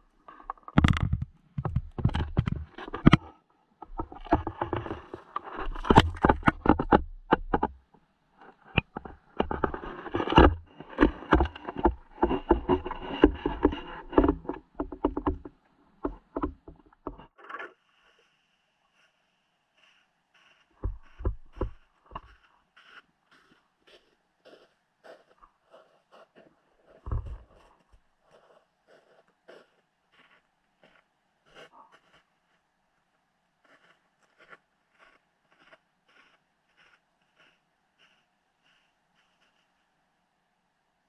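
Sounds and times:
muffled underwater knocks and scrapes: 0.2 - 7.8, 8.4 - 17.8, 20.8 - 22.4, 26.9 - 27.7.

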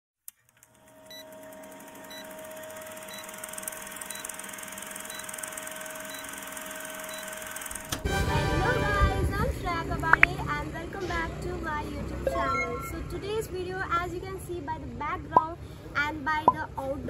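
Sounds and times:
film projector rattling: 0.4 - 8.0
short high beeps: 12.2 - 13.2.

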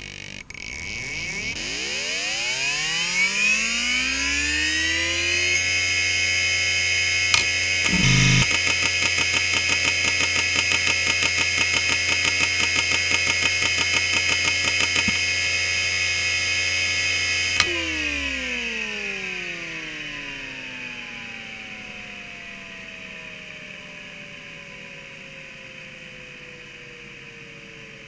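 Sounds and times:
hard drive spindle whine: 0.1 - 28.0
platters spinning down whine: 0.4 - 18.9
hard drive rhythmic pulsing: 5.4 - 18.3
sharp click: 7.4 - 15.2, 17.6 - 17.8.

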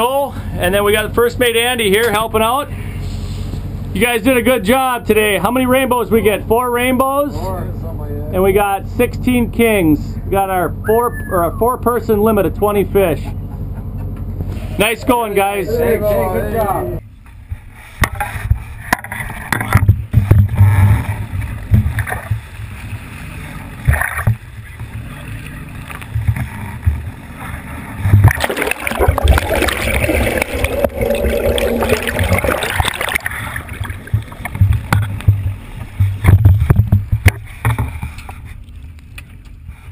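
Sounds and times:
boat rumbling: 0.0 - 39.9
water noise: 19.3 - 39.1
rush of bubbling water: 28.2 - 36.2.

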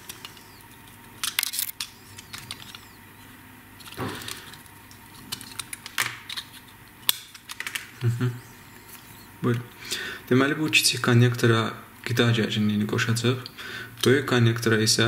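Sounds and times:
wires rustling: 0.0 - 9.8.

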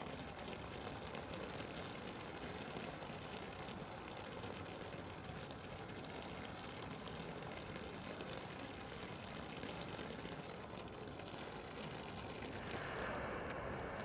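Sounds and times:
small crackles: 0.0 - 14.0
firework fountain hissing: 12.5 - 14.0.

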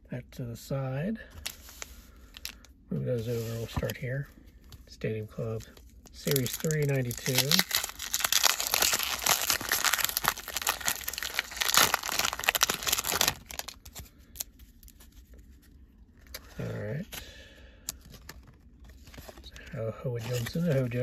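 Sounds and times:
wrapper crinkling and tearing: 1.4 - 2.6, 5.6 - 15.2, 20.2 - 21.0
cards rustling and clicking: 6.2 - 15.6, 20.2 - 21.0.

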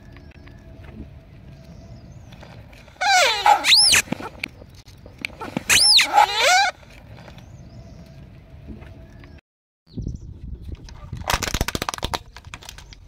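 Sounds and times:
rubber squeaky toys squealing: 3.0 - 4.4, 5.4 - 6.8.

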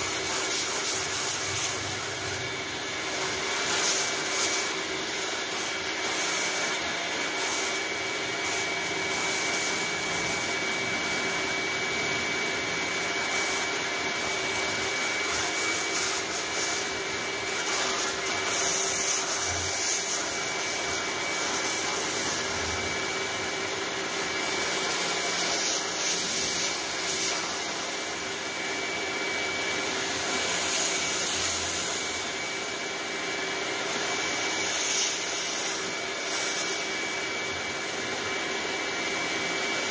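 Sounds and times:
pressure washer water spray: 0.0 - 22.8, 24.1 - 28.5, 29.8 - 32.7, 33.9 - 37.7
pressure washer high whine: 0.0 - 39.9.

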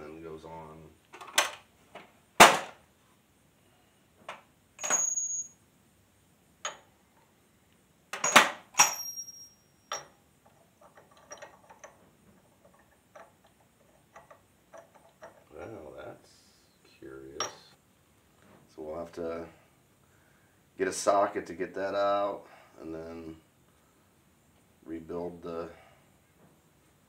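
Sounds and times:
metal tools clanking: 4.8 - 5.6, 8.2 - 10.2, 10.8 - 12.0, 17.4 - 17.7.

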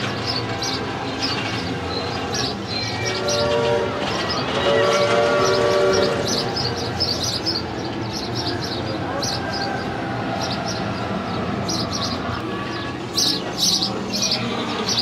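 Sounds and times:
roller coaster on track: 0.0 - 15.0
small birds chirping: 5.4 - 15.0.

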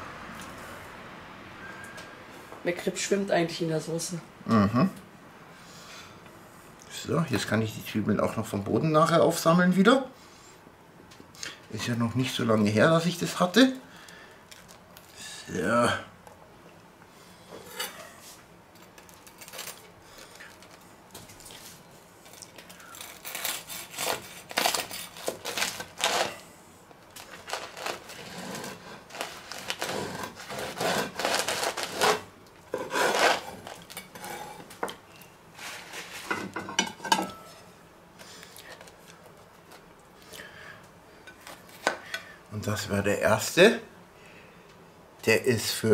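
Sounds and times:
bread knife sawing through bread: 23.1 - 26.4, 27.3 - 34.6.

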